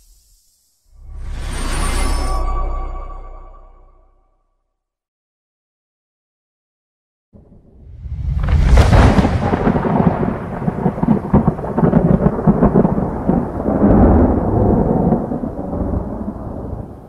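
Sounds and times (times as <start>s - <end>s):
rolling thunder rumble: 7.4s - 17.0s
thunder crack: 7.4s - 17.0s.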